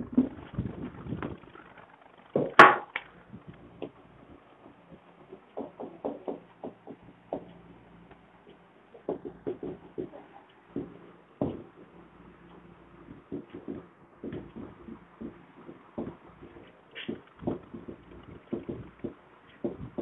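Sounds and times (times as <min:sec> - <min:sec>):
faint steady hum: 0:00.0 - 0:20.0
sharp clack: 0:01.2 - 0:04.0.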